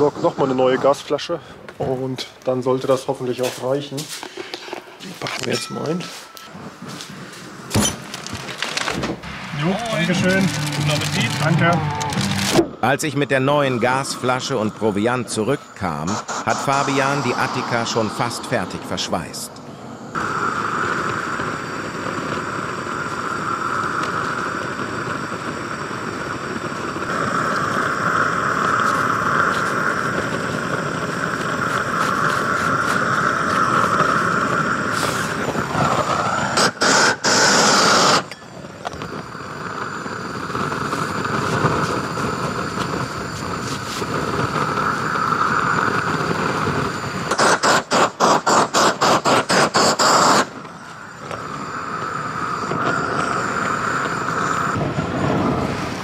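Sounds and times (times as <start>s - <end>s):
gas torch hissing: 0.0s - 56.0s.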